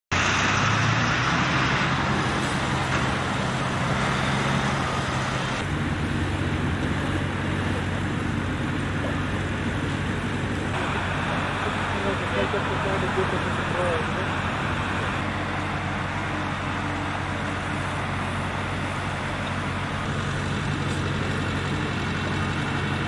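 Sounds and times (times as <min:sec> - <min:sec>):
road traffic hum: 0:00.1 - 0:23.0.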